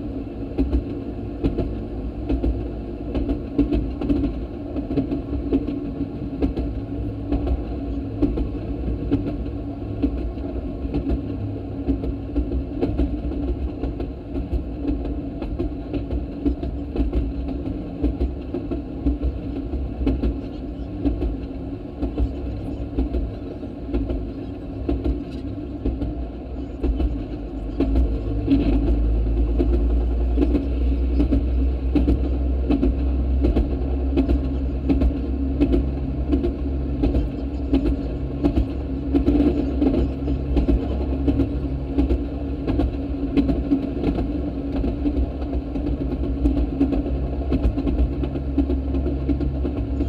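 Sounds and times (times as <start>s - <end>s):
engine drone: 0.0s - 50.0s
wheels clicking on track: 0.0s - 50.0s.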